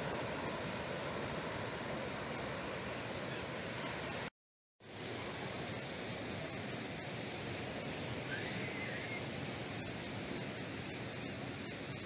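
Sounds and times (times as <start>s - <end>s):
ocean surf washing ashore: 0.0s - 4.3s.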